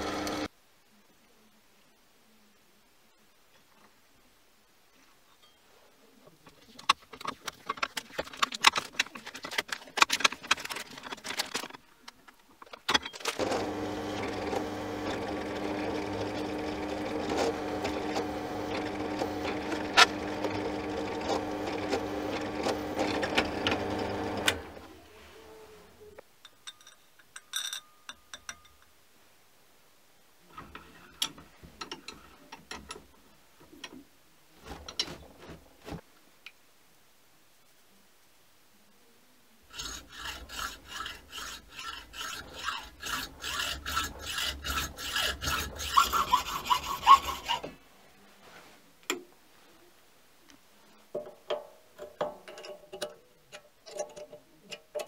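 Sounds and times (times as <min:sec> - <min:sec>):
drill press humming: 0:00.0 - 0:00.5, 0:13.4 - 0:24.9
metal clinks: 0:26.4 - 0:28.9
hand file rasping on metal: 0:39.7 - 0:47.7.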